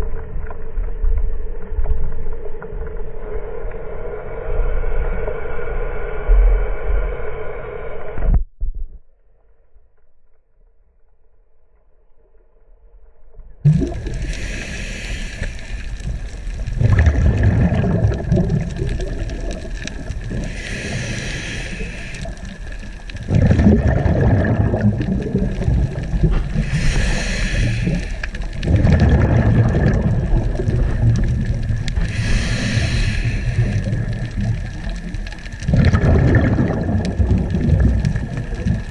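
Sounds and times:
exhaled bubbles rumbling: 0:13.6 - 0:38.9
regulator hissing inhale: 0:14.1 - 0:16.2, 0:20.3 - 0:23.0, 0:26.4 - 0:28.6, 0:31.8 - 0:34.5.

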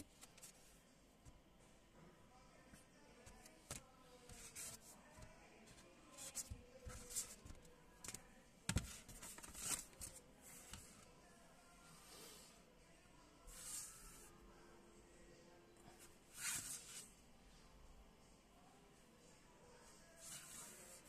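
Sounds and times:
paper and card rustling: 0:08.8 - 0:10.9.

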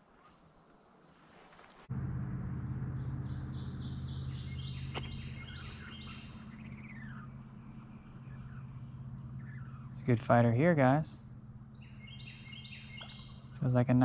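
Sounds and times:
insects buzzing: 0:00.0 - 0:14.0
low hum: 0:01.9 - 0:14.0
bird chirping: 0:02.8 - 0:13.8.

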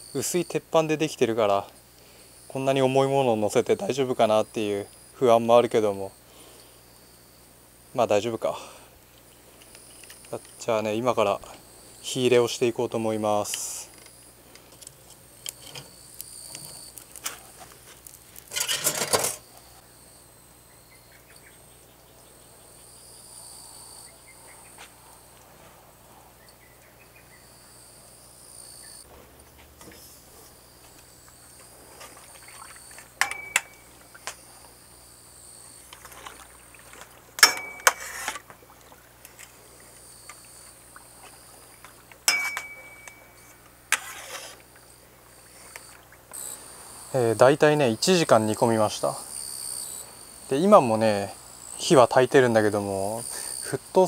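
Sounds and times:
insects chirring: 0:00.0 - 0:54.0
metallic clinks: 0:42.3 - 0:43.5.

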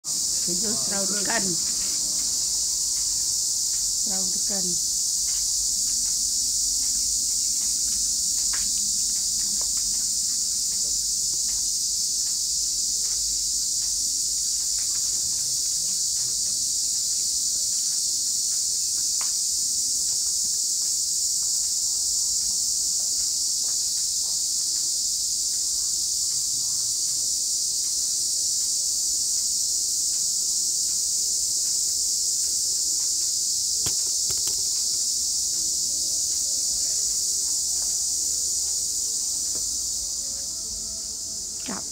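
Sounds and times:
high-pitched insect chorus: 0:00.0 - 0:41.9.

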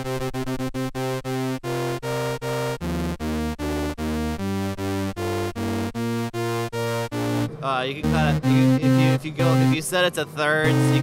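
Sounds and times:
short repeated synth notes: 0:00.0 - 0:09.9, 0:10.6 - 0:11.0.

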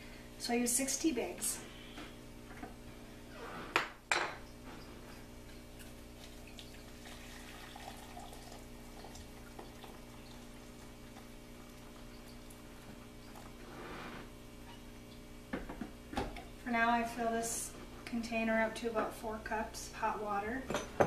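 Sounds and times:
hot water pouring into glass: 0:05.9 - 0:13.7.

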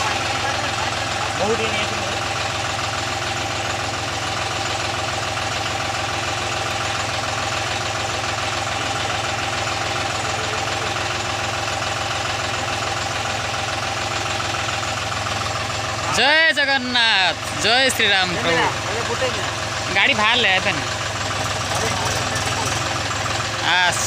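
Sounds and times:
tractor diesel engine idling: 0:00.0 - 0:24.0.

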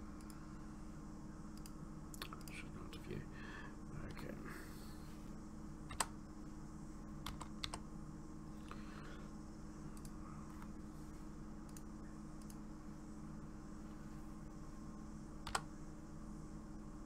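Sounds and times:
steady low hum: 0:00.0 - 0:17.0
keyboard and mouse clicks: 0:05.9 - 0:06.1, 0:07.2 - 0:07.8, 0:15.4 - 0:15.7.

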